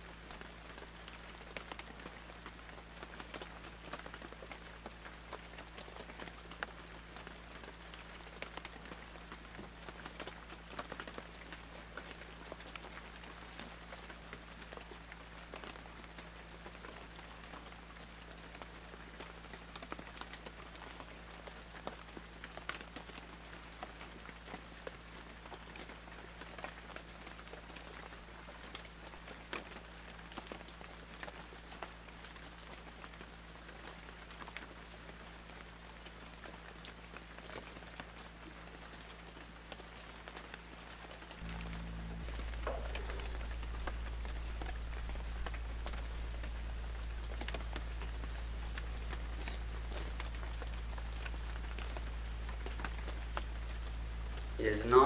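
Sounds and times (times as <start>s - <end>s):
faint crackling patter: 0.0s - 55.0s
steady hiss: 41.3s - 55.0s
low hum: 41.4s - 54.9s.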